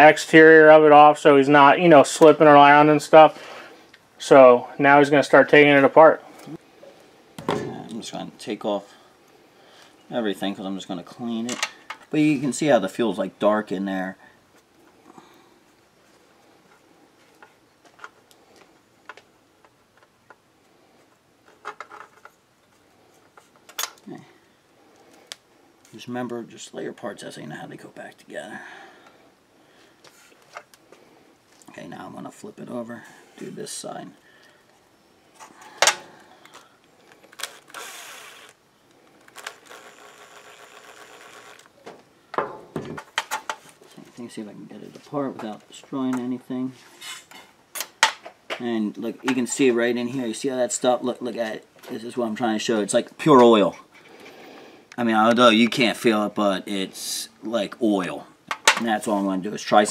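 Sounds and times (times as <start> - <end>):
cordless drill running: 37.4 - 38.6, 39.3 - 41.7.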